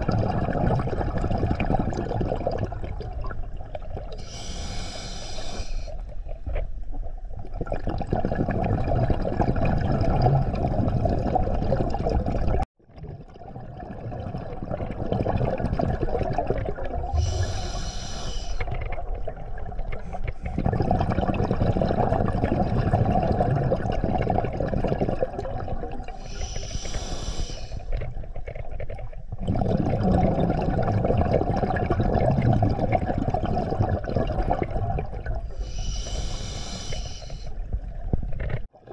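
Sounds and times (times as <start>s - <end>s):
rushing exhaled bubbles: 0.0s - 4.5s, 7.4s - 36.7s
hissing regulator inhale: 4.2s - 6.0s, 17.1s - 18.7s, 26.2s - 27.9s, 35.6s - 37.6s.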